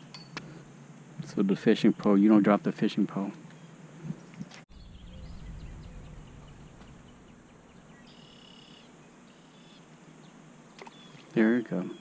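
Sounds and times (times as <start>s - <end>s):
faint high bird chirps: 3.5s - 12.0s
low rumble: 4.7s - 8.2s.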